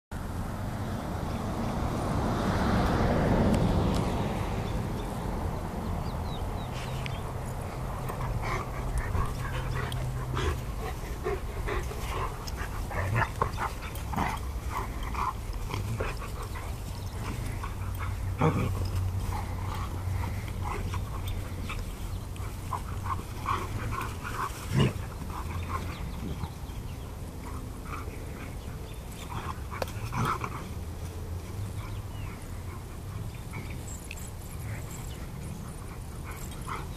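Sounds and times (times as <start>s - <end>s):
dogs growling and yelping in play: 7.4s - 36.9s.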